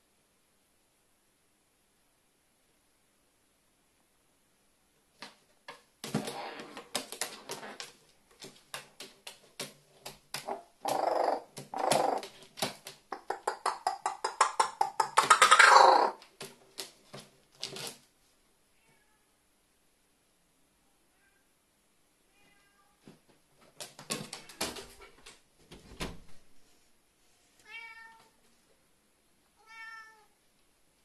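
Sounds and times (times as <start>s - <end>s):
cardboard rustling and scraping: 6.0s - 8.7s.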